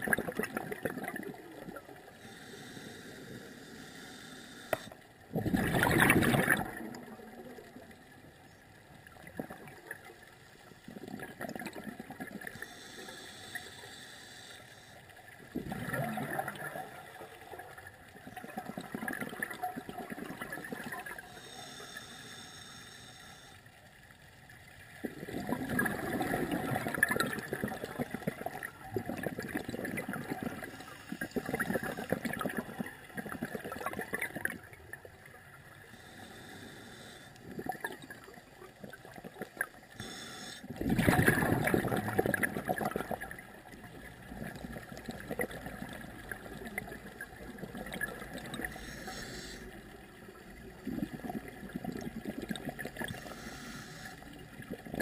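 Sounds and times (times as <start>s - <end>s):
regulator inhale hiss: 2.1s - 5.0s, 12.4s - 15.2s, 21.2s - 23.7s, 30.6s - 32.1s, 35.8s - 37.5s, 39.9s - 40.8s, 48.5s - 50.0s, 53.1s - 54.5s
gurgling exhaust bubbles: 5.3s - 7.4s, 15.5s - 17.7s, 40.7s - 48.8s, 49.8s - 53.3s.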